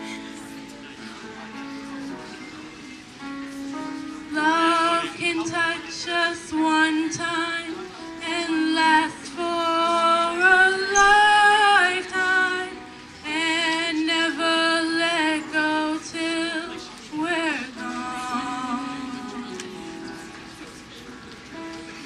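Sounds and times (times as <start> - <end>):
woman singing: 4.3 - 20.1
musical accompaniment: 17.6 - 22.0.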